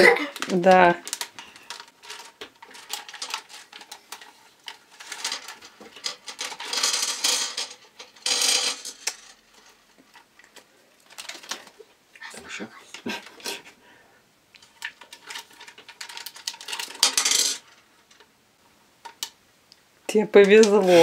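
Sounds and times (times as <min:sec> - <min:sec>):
candies rattling into steel pot: 0:00.0 - 0:11.8, 0:14.6 - 0:18.3, 0:20.3 - 0:21.0
plastic wrappers crinkling: 0:00.0 - 0:12.0, 0:14.5 - 0:18.3.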